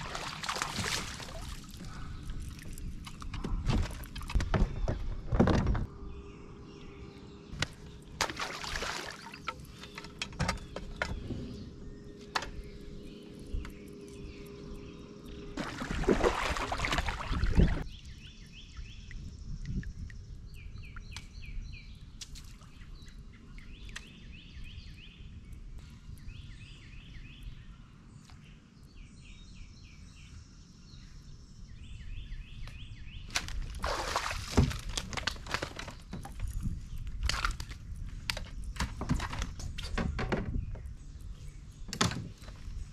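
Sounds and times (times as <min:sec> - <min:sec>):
kayak paddle splashing: 0:00.0 - 0:02.7, 0:08.2 - 0:09.6, 0:15.6 - 0:17.8, 0:33.7 - 0:35.0.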